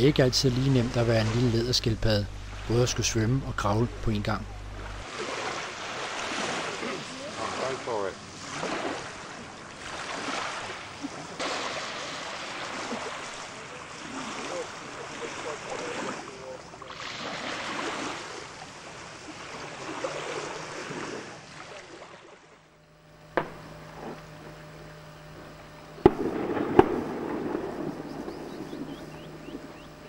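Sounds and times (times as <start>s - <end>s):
surf washing up a beach: 0.0s - 22.6s
steady low hum: 0.0s - 30.0s.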